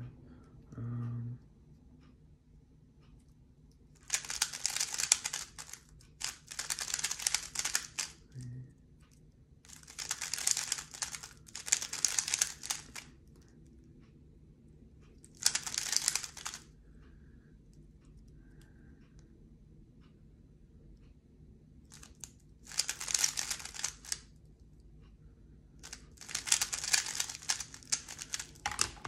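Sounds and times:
puzzle cube clicking turns: 4.0s - 8.4s, 9.7s - 13.4s, 15.2s - 16.7s, 21.9s - 24.3s, 25.8s - 29.0s.

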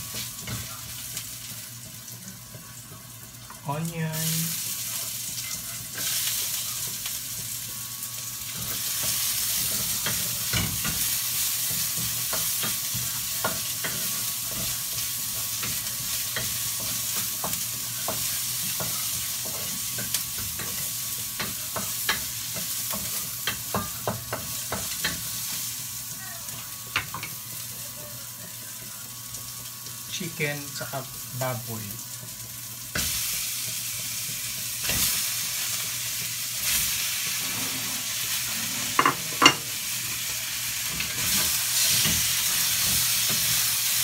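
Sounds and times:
garlic and onion sizzling in oil: 0.0s - 44.0s
wooden spatula scraping a wok: 36.7s - 39.7s.

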